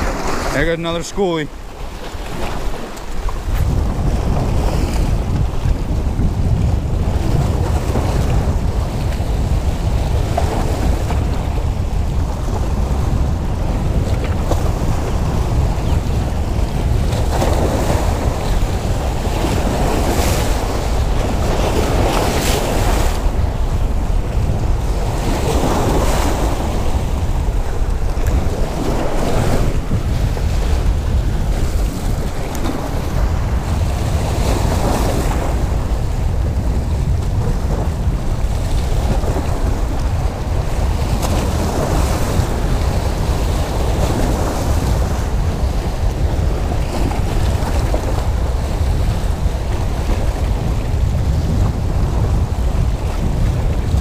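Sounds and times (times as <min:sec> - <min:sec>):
waves splashing against boulders: 0:00.0 - 0:54.0
wind buffeting microphone: 0:00.0 - 0:54.0.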